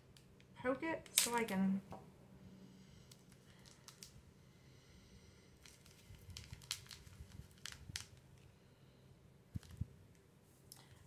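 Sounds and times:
paper packaging crinkling: 3.2s - 4.2s, 5.6s - 8.5s.

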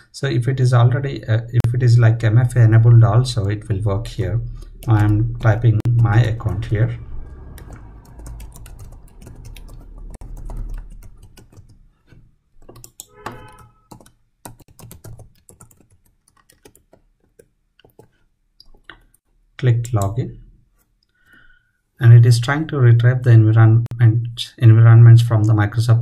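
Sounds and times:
typing on computer keyboard: 4.6s - 6.1s, 7.6s - 11.8s, 12.6s - 18.1s.

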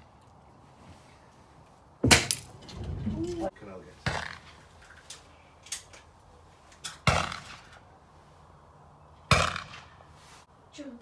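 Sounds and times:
air rifle shots: 6.9s - 7.8s, 9.3s - 10.1s.

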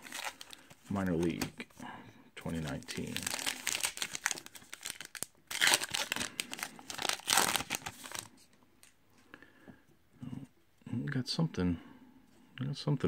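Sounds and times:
wrapper ripping: 0.0s - 1.5s, 2.7s - 8.3s
wrapper crinkling: 0.0s - 1.6s, 2.6s - 8.9s.

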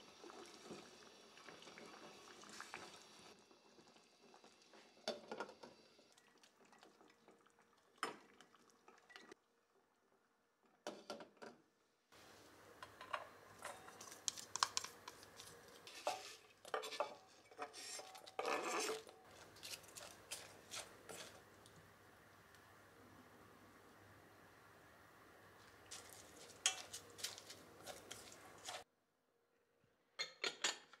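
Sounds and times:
rustle of cabbage being mixed: 13.9s - 16.7s, 17.3s - 21.8s, 25.6s - 28.9s
chopsticks scraping metal bowl: 14.3s - 21.4s
kitchen knocks and clinks: 30.2s - 31.0s.

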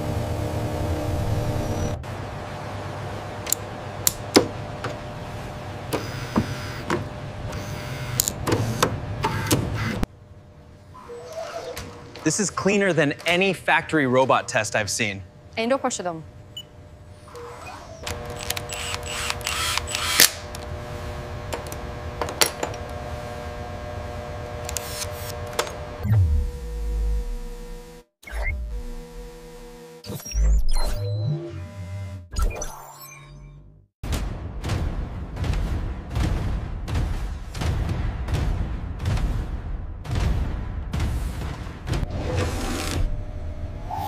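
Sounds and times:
low machine hum: 0.0s - 11.0s, 11.8s - 28.0s, 42.0s - 44.0s
servo motor whirs: 17.3s - 20.4s.

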